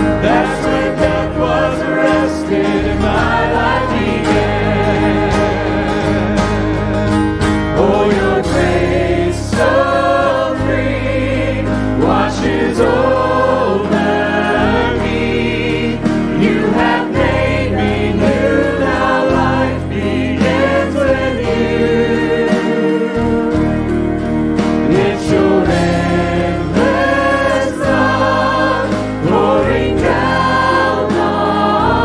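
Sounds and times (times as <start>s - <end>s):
acoustic guitar: 0.0s - 32.0s
bass guitar: 0.0s - 32.0s
group singing worship song: 0.0s - 32.0s.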